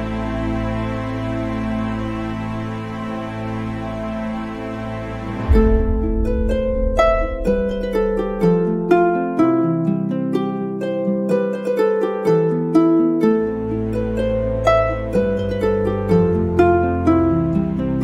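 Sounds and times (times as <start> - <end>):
low sustained notes: 0.0 - 10.2
plucked harp-like notes: 0.0 - 18.0.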